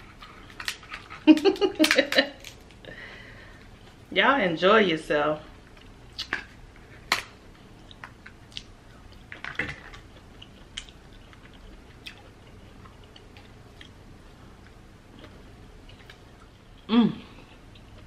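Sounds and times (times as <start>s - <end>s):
chewing: 7.8s - 18.0s.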